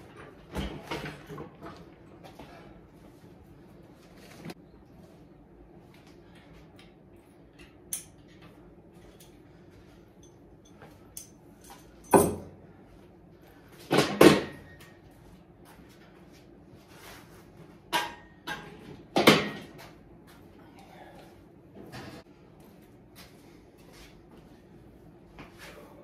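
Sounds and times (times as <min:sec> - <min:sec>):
gym equipment knocking and clanking: 0:11.7 - 0:12.6.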